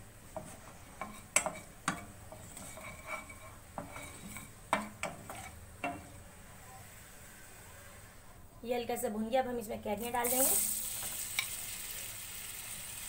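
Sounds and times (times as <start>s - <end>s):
spatula knocking on pan: 0.3s - 6.1s
spatula scraping pan: 0.3s - 6.2s.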